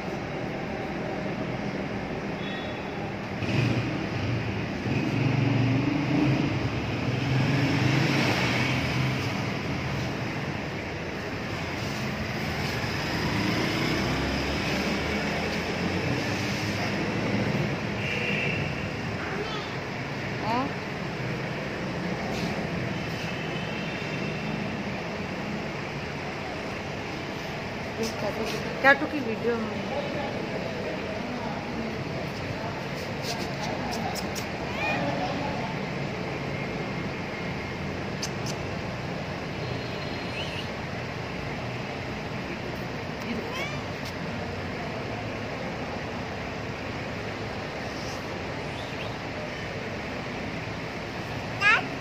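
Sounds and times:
wash of noise: 3.2s - 18.1s.

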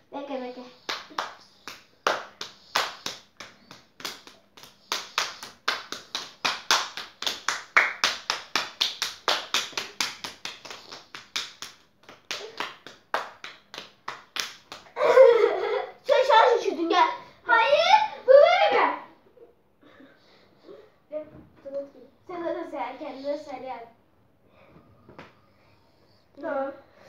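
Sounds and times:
children clapping hands: 0.9s - 15.0s.

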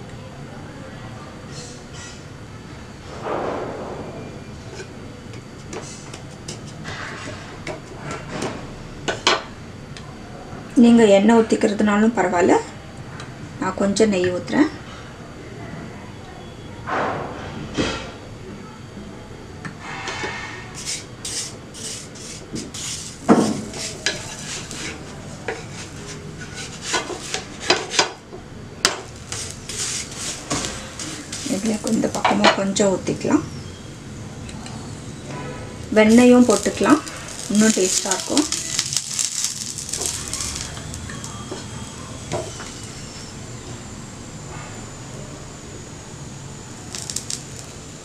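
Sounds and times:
flatbread hissing on hot griddle: 19.8s - 28.1s, 29.0s - 32.2s, 36.0s - 43.3s, 46.8s - 48.0s
wooden spatula scraping pan: 20.2s - 28.1s, 29.3s - 32.2s, 36.0s - 41.6s
small crackles and ticks: 36.1s - 41.4s, 46.9s - 47.7s.

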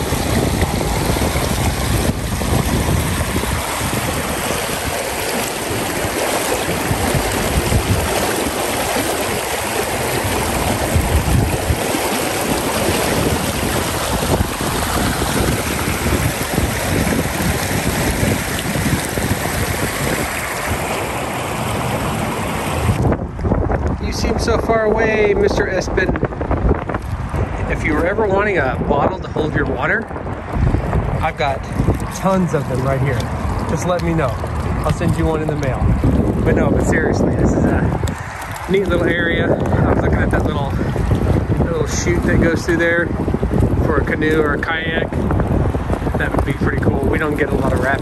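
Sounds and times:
river water rushing over rocks: 0.0s - 23.0s, 31.2s - 42.5s.

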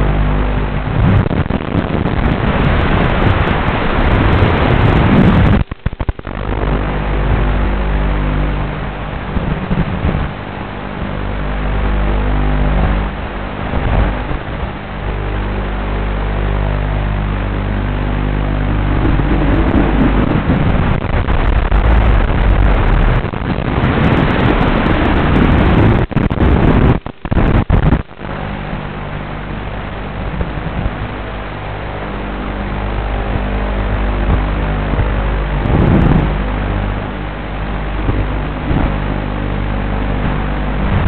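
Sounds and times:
quadcopter propellers buzzing: 0.0s - 26.8s
rushing air: 0.0s - 41.0s.

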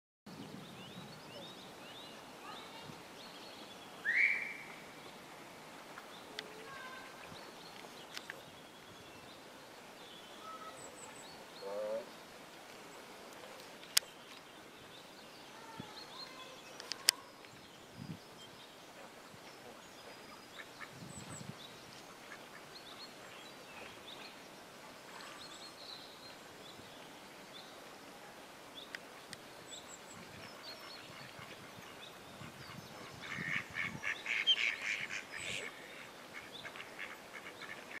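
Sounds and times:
small birds chirping: 12.8s - 27.8s, 28.7s - 38.0s
sharp clicks: 16.8s - 17.2s.

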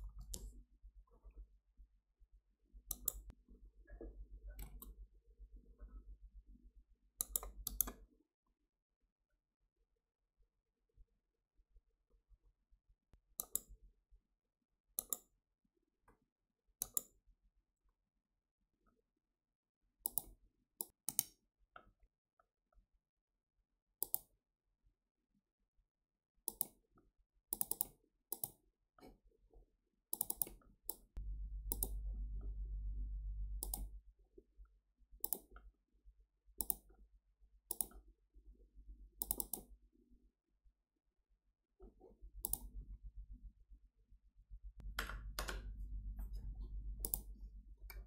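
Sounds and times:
computer mouse clicks: 2.9s - 3.4s, 4.6s - 5.0s, 7.2s - 8.0s, 13.4s - 13.8s, 15.0s - 15.3s, 16.8s - 17.2s, 20.0s - 21.4s, 24.0s - 24.3s, 26.5s - 26.8s, 27.5s - 29.2s, 30.1s - 32.4s, 33.5s - 34.0s, 35.2s - 35.7s, 36.6s - 37.0s, 37.7s - 38.0s, 39.2s - 39.8s, 41.8s - 42.8s, 44.8s - 48.0s
low steady hum: 31.2s - 34.2s, 44.5s - 48.0s.

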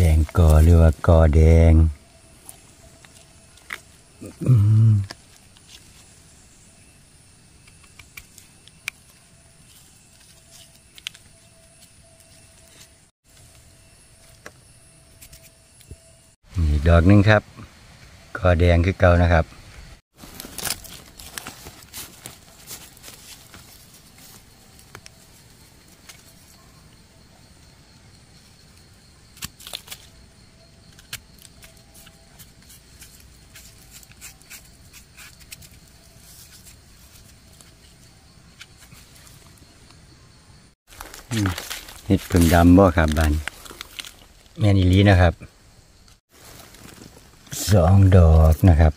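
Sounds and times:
knife scraping soil: 30.9s - 39.4s.

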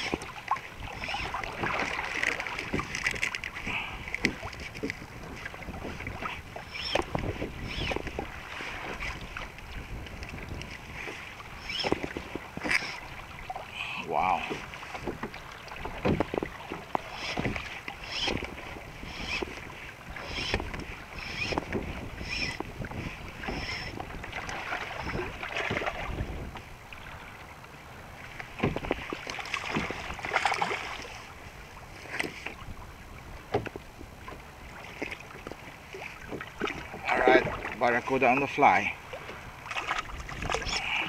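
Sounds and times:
water slapping plastic hull: 0.0s - 13.7s, 14.4s - 26.7s, 28.4s - 31.2s, 39.2s - 41.0s
wind on microphone: 0.0s - 27.4s, 39.2s - 41.0s.

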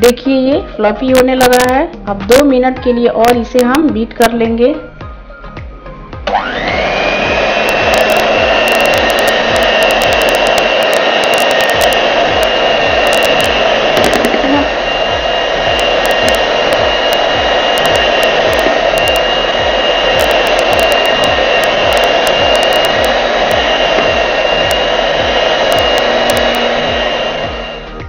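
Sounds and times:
electric hand mixer whipping cream: 6.2s - 28.0s.

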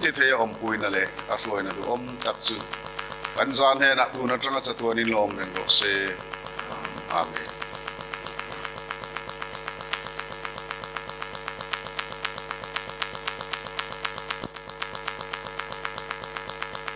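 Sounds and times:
electrical hum: 0.0s - 16.9s
rapid interference clicks: 0.0s - 16.9s.

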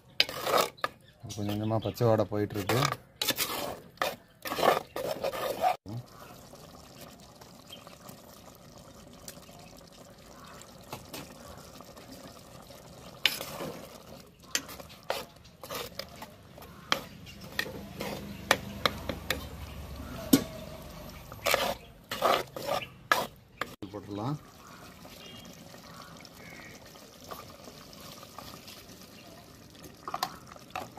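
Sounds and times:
spoon scraping clay pot: 0.0s - 5.8s, 13.2s - 23.8s
curry simmering: 0.0s - 30.9s.

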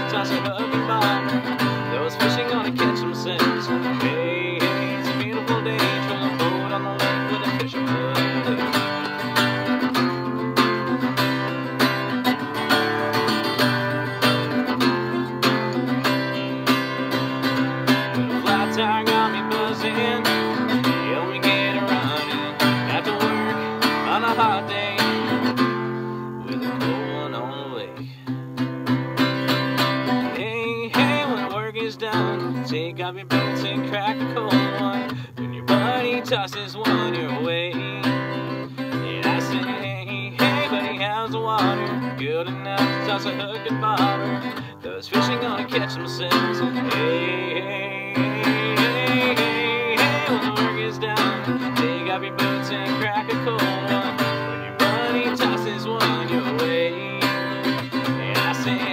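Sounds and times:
acoustic guitar strumming: 0.0s - 58.9s.

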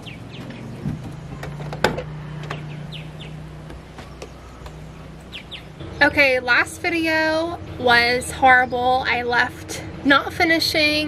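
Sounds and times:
birds chirping: 0.0s - 11.0s
van door knocks: 0.4s - 2.8s, 3.6s - 4.9s.

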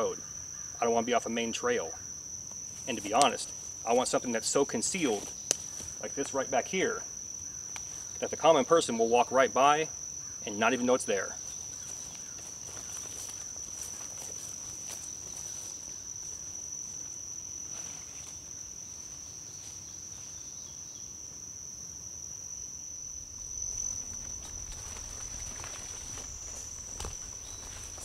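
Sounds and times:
insects trilling: 0.0s - 28.0s
footsteps through undergrowth: 5.0s - 6.1s, 11.4s - 20.4s, 23.1s - 28.0s.

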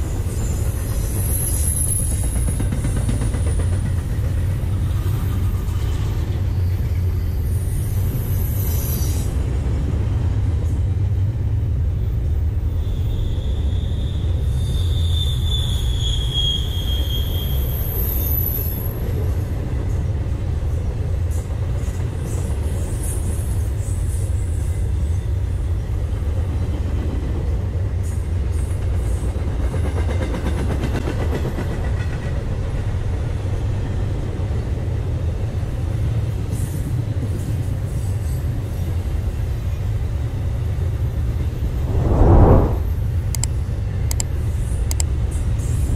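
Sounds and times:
train wheel squeal: 0.0s - 9.8s, 12.6s - 19.4s
freight train rumbling on rails: 0.0s - 42.9s.

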